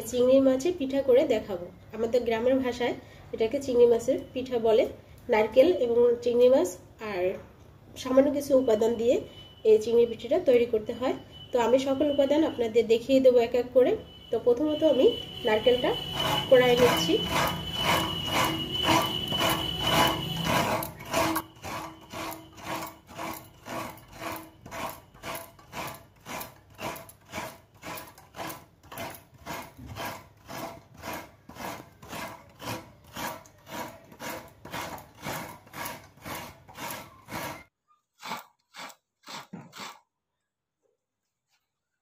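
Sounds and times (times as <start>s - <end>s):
coconut grating rasps: 15.1s - 40.0s.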